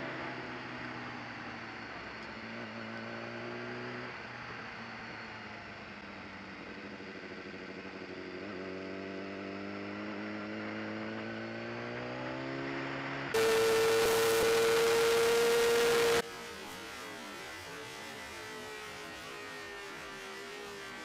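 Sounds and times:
motorcycle engine revving: 6.6 - 21.0.

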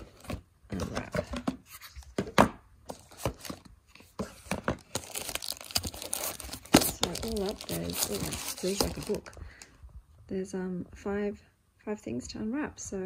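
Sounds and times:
wrapping paper rustling: 4.8 - 9.4.

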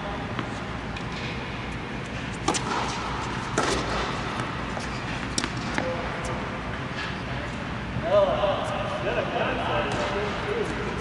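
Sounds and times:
tennis balls struck by rackets: 2.4 - 6.2.

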